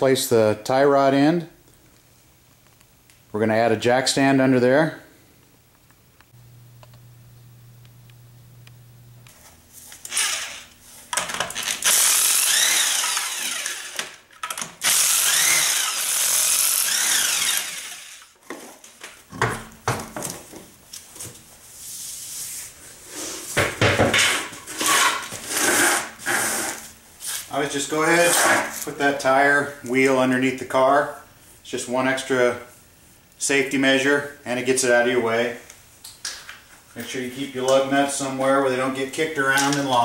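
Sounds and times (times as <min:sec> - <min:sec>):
impact wrench running: 0:09.9 - 0:18.3.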